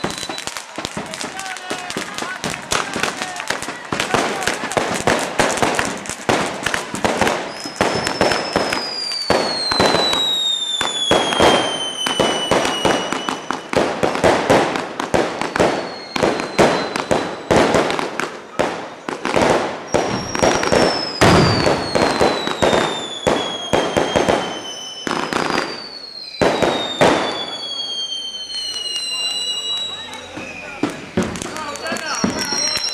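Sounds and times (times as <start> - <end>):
firework whistle sliding down: 0.0 - 0.8, 7.3 - 13.7, 15.4 - 17.5, 19.9 - 32.9
firecrackers crackling bangs: 0.0 - 32.9.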